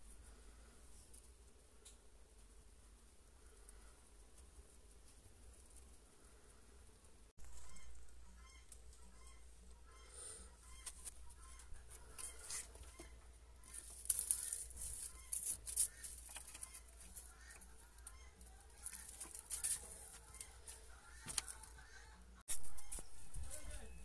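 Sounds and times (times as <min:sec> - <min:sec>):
faint animal clucking: 0:07.4 - 0:24.0
wood shavings rustling: 0:11.8 - 0:21.8.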